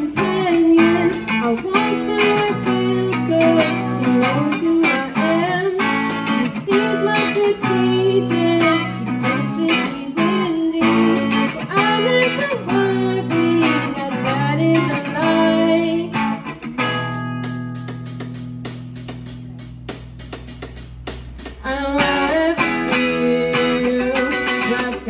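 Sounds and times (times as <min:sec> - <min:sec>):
bending melody line: 0:00.0 - 0:25.0
strummed guitar music: 0:00.0 - 0:25.0.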